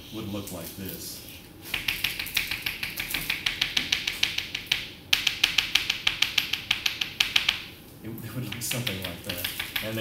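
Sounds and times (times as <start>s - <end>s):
chalk tapping on chalkboard: 1.7s - 7.7s, 8.4s - 10.0s.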